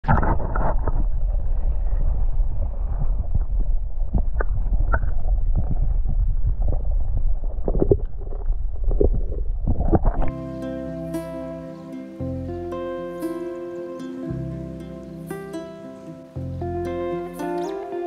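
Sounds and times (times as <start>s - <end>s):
muffled underwater rumble: 0.0s - 10.5s.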